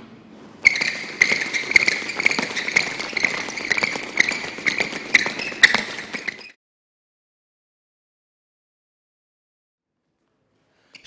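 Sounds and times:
shoes squeaking on court: 0.4 - 6.6
footfalls on court: 0.6 - 6.5.

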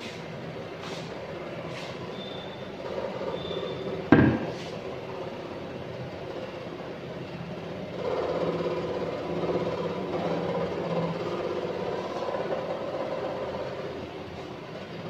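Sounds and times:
steady background hum: 0.0 - 15.0
sharp knock: 4.1 - 4.6.

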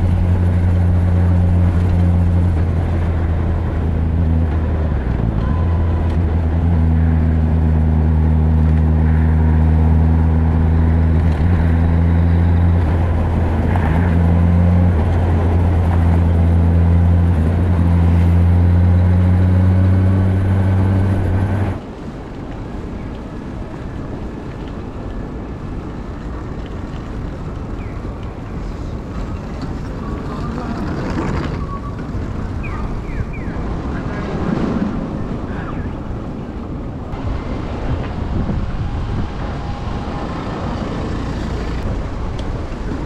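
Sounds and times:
motorcycle engine droning: 0.0 - 21.8
street noise: 0.0 - 43.0
wind rush: 0.0 - 43.0.

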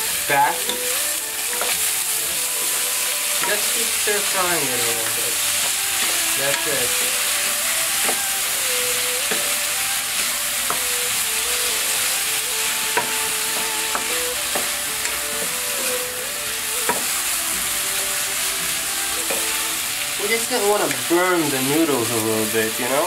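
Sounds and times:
food sizzling in a wok: 0.0 - 23.0
wooden spatula tapping pan: 1.5 - 1.8, 8.0 - 8.3, 9.2 - 9.6, 10.6 - 11.0, 12.9 - 15.9, 16.8 - 17.2, 19.2 - 19.6.

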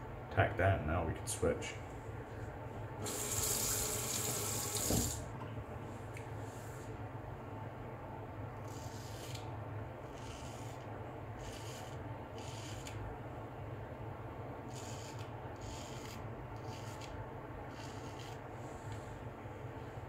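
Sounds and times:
razor scraping stubble: 8.7 - 9.4, 10.0 - 10.8, 11.4 - 13.0, 14.7 - 18.4.

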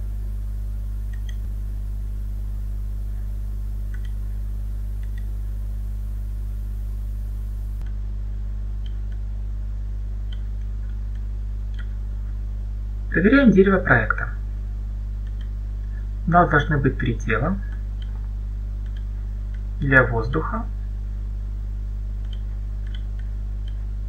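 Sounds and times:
low mains hum: 0.0 - 24.0
faint clicks: 1.1 - 1.5, 3.9 - 4.2, 5.0 - 5.3, 10.3 - 11.9, 15.2 - 15.5, 17.7 - 19.7, 22.2 - 23.9.

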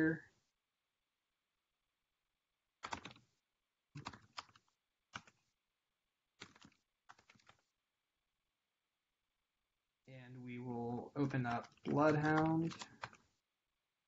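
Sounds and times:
typing on computer keyboard: 2.8 - 3.2, 4.0 - 5.4, 6.4 - 7.6, 11.2 - 13.3.

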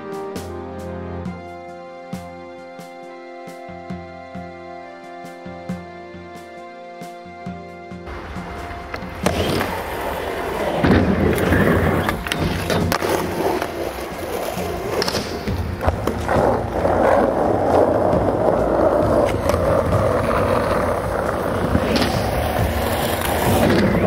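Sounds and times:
skateboard wheels rolling on concrete: 0.0 - 24.0
skateboard clacks: 8.1 - 24.0.

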